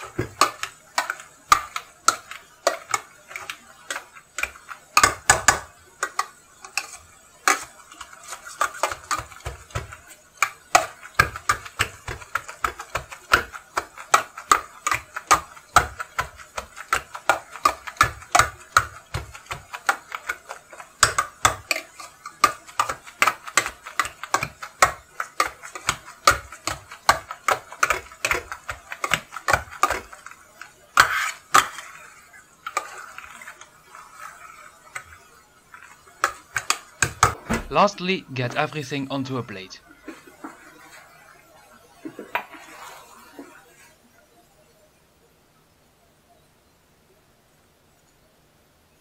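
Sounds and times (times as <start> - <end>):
potato masher knocking on pan: 0.0 - 37.7.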